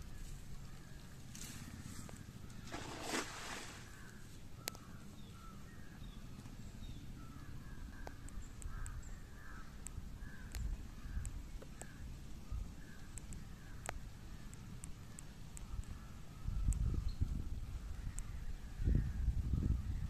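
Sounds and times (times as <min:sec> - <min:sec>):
birds calling: 0:00.0 - 0:20.0
faint clicks: 0:04.0 - 0:04.9, 0:07.9 - 0:12.0, 0:12.8 - 0:16.9.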